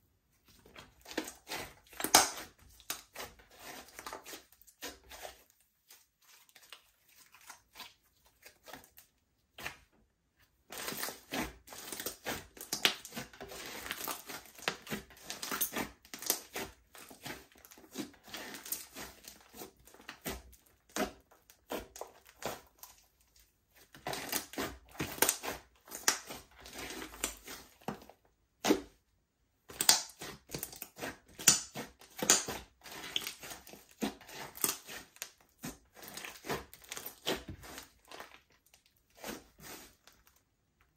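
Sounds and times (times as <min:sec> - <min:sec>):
slime crackling and popping: 0:01.0 - 0:03.2, 0:29.7 - 0:38.6.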